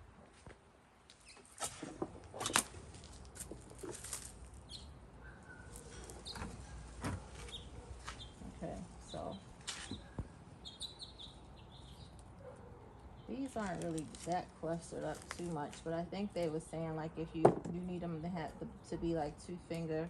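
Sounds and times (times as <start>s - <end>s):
leaves and branches rustling: 1.1s - 10.5s, 11.7s - 16.5s.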